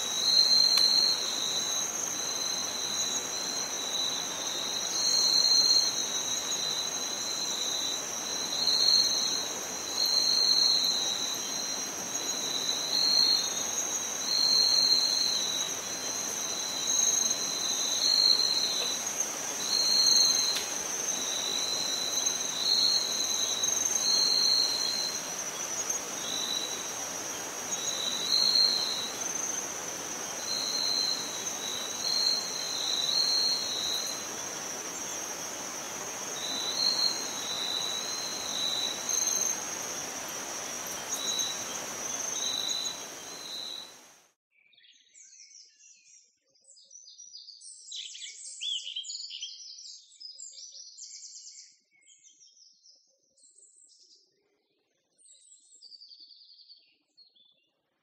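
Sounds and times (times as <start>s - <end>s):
high-pitched insect trill: 0.0s - 44.1s
lower insect trill: 0.0s - 44.1s.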